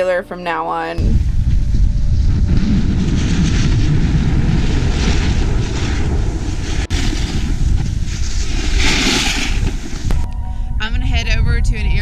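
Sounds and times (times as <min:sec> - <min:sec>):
wind buffeting microphone: 0:01.0 - 0:12.0
snowboard scraping on snow: 0:01.2 - 0:10.1.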